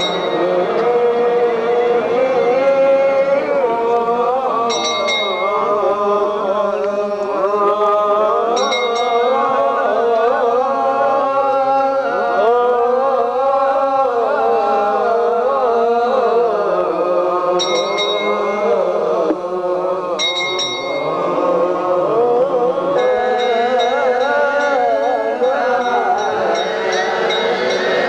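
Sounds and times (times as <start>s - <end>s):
voices chanting together: 0.0s - 28.0s
bright metallic jingles: 23.0s - 28.0s.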